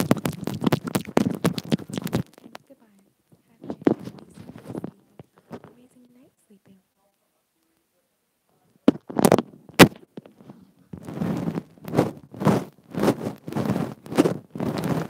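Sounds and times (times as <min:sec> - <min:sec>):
tongue licking microphone: 0:00.0 - 0:02.8
sharp clicks and pops: 0:00.0 - 0:05.8, 0:08.8 - 0:15.0.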